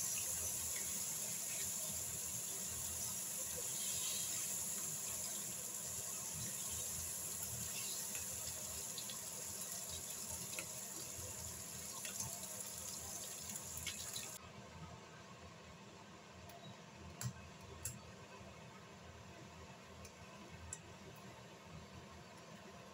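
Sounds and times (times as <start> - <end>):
bacon sizzling in a pan: 0.0 - 14.4
faint hiss: 0.0 - 14.4.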